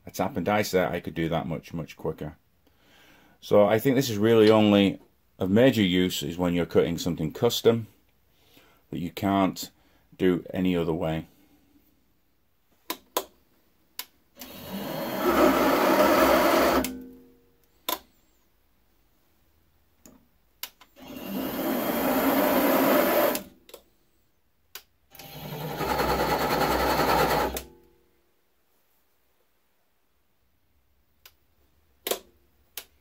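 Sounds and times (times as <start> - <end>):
lathe motor and gears running: 14.7 - 16.9, 25.4 - 27.6.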